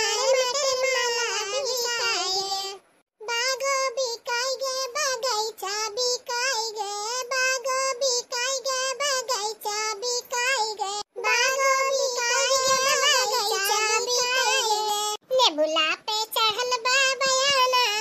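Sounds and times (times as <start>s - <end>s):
high-pitched cartoon voice: 0.0s - 4.0s, 10.4s - 18.0s.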